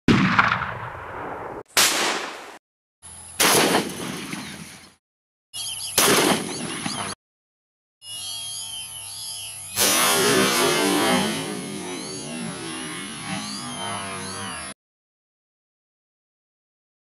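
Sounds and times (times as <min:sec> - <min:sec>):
shotgun blasts: 0:00.1 - 0:02.6, 0:03.4 - 0:04.6, 0:06.0 - 0:07.0
ducks whistling calls: 0:11.8 - 0:14.7.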